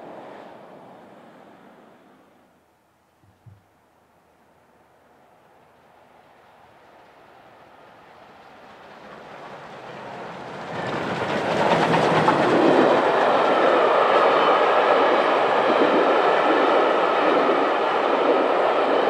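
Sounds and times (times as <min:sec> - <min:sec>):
steam locomotive passing: 0:05.2 - 0:19.0
train wheels clattering on rails: 0:07.0 - 0:19.0.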